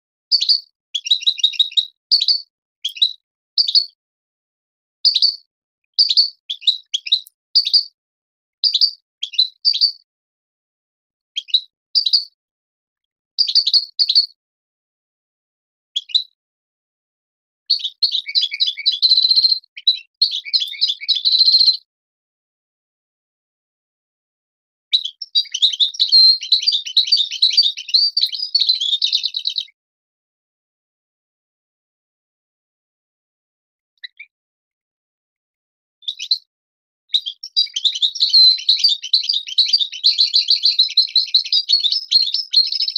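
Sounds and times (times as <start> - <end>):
goldfinch singing: 0.3 - 3.9, 6.0 - 7.9, 8.6 - 10.0, 17.7 - 21.9, 24.9 - 29.8, 36.0 - 36.5, 37.1 - 42.9.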